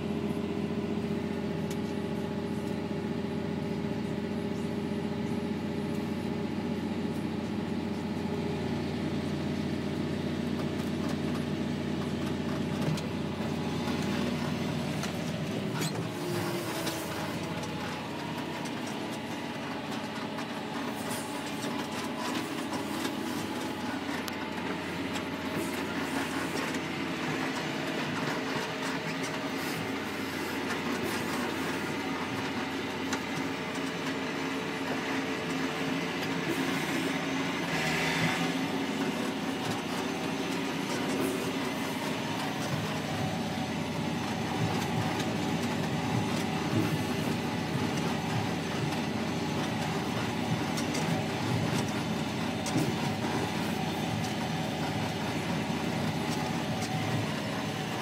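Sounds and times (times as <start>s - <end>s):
diesel tractor engine under load: 0.0s - 58.0s.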